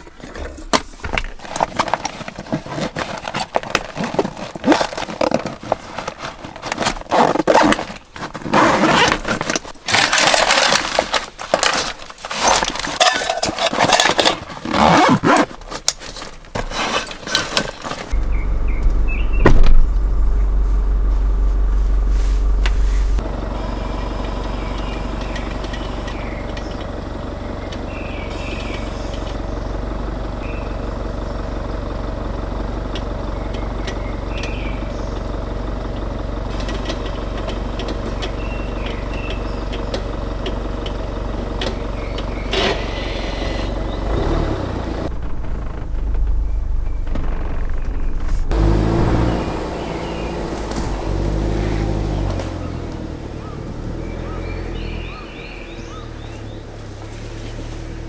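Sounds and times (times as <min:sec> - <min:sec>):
bags and gear rustling: 0:00.0 - 0:18.2
car engine idling: 0:15.6 - 0:58.0
faint bird chirps: 0:18.2 - 0:19.6, 0:30.4 - 0:30.9
sharp clunk: 0:19.4 - 0:20.0.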